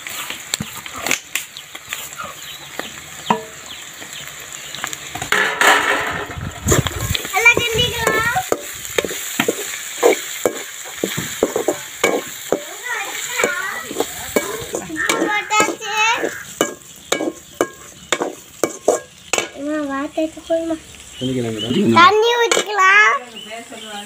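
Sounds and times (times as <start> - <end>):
snails sizzling in hot oil: 0.0 - 24.0
spoon scraping a pan: 5.3 - 19.6.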